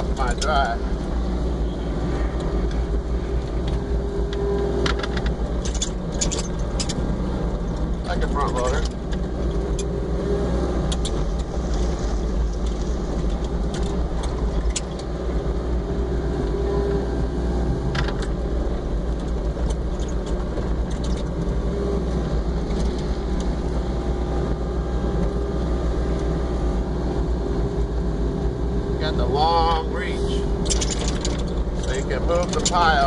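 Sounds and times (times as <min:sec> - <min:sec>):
sharp clicks and knocks: 0:03.4 - 0:09.9, 0:10.9 - 0:11.8, 0:19.1 - 0:21.6, 0:30.6 - 0:33.0
excavator engine under load: 0:29.0 - 0:33.0.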